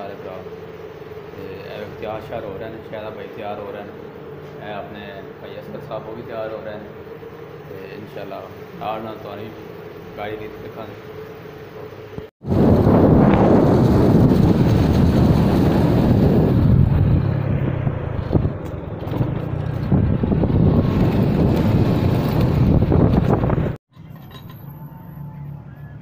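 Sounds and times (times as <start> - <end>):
engine and road noise: 0.0 - 26.0
wind on microphone: 12.4 - 23.8.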